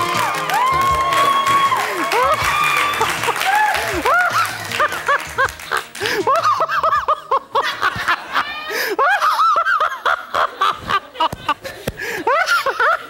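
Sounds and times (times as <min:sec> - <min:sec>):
man laughing hard: 0:03.0 - 0:13.0.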